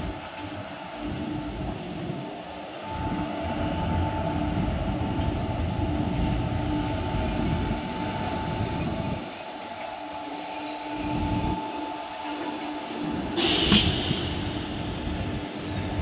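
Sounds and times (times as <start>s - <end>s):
steady whine: 0.0s - 16.0s
train wheels rumbling on rails: 12.3s - 16.0s.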